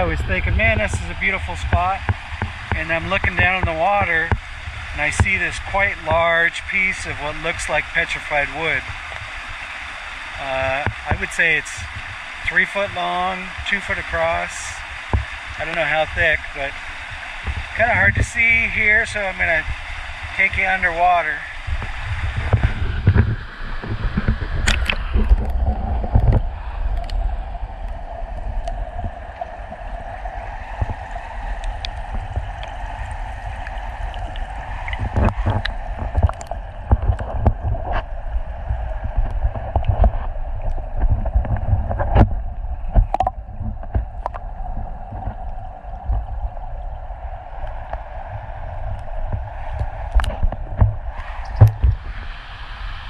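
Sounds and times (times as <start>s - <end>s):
muffled underwater stream flow: 0.0s - 53.0s.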